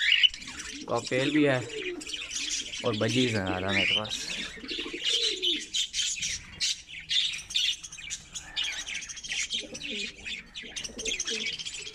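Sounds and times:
budgerigars chattering and chirping: 0:00.0 - 0:11.9
low warbling calls: 0:00.0 - 0:11.9.

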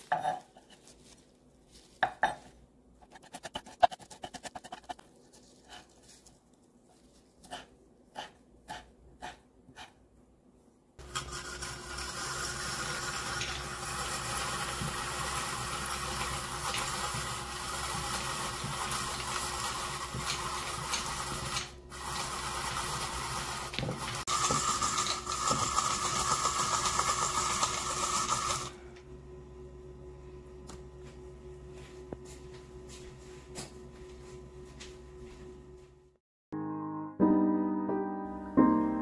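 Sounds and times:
vegetable shredder motor running: 0:11.0 - 0:28.8.

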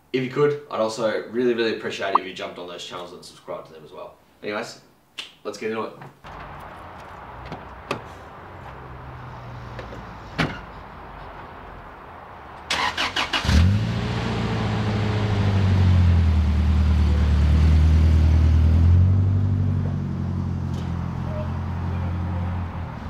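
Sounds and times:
truck engine cranking and running: 0:12.7 - 0:13.8.

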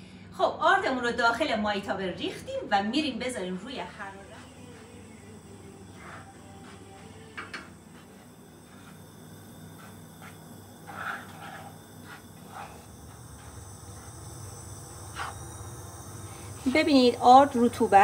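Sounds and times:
wooden spoon scraping flour in pan: 0:05.9 - 0:07.1, 0:07.8 - 0:14.2.

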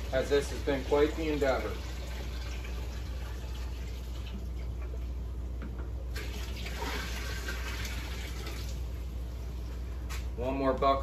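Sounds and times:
water pouring into a glass tank: 0:00.0 - 0:04.7, 0:06.1 - 0:08.9.

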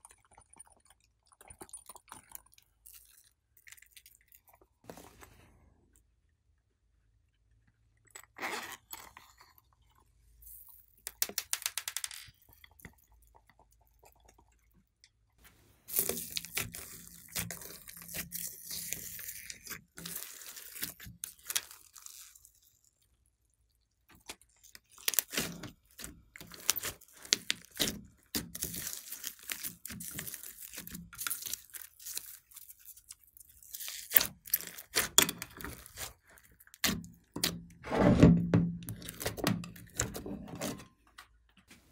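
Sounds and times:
slime squishing and crackling: 0:15.8 - 0:22.8, 0:24.1 - 0:37.7.

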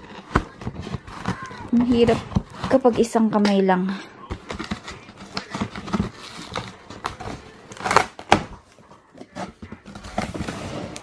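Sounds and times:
sharp cardboard cracks: 0:00.0 - 0:02.9, 0:04.3 - 0:08.6
cardboard and tape crackling: 0:00.0 - 0:03.6, 0:04.2 - 0:11.0.

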